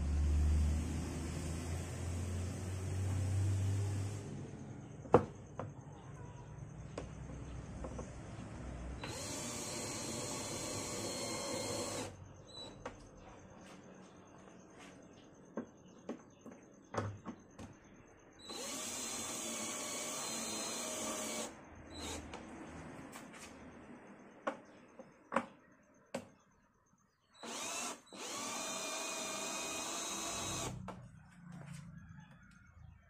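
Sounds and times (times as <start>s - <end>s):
cordless drill motor: 9.0s - 12.1s, 18.4s - 22.3s, 27.4s - 30.8s.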